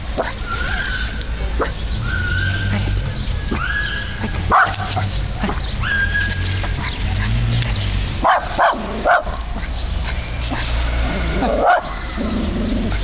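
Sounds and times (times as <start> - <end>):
small dog barking: 0.2 - 0.4, 4.5 - 5.1, 8.2 - 9.4, 11.4 - 12.0.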